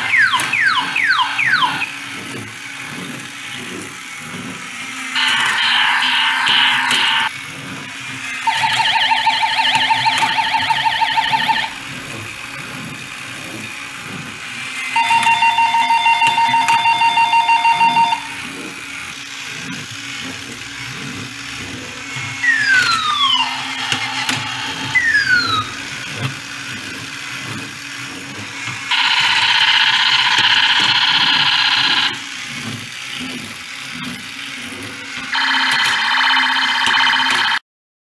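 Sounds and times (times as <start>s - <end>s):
toy gear motor whirring: 0.0s - 37.6s
warbling electronic beeps: 5.2s - 7.3s, 22.5s - 25.8s.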